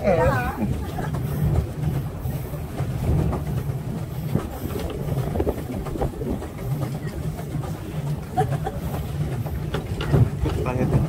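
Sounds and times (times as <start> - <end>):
pedal boat churning rumble: 0.0 - 11.0.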